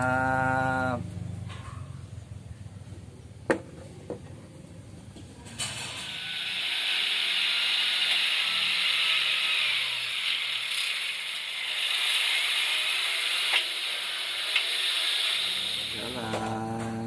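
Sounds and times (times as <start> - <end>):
concrete mixer truck hissing: 5.7 - 16.4.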